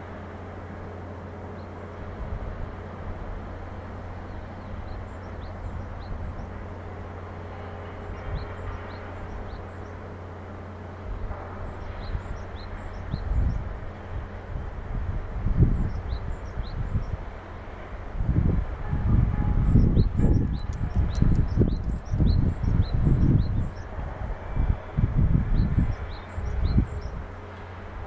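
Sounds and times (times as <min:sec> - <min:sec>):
distant traffic and machinery hum: 0:00.0 - 0:28.0
wind buffeting microphone: 0:11.0 - 0:28.0
small birds chirping: 0:19.7 - 0:23.9.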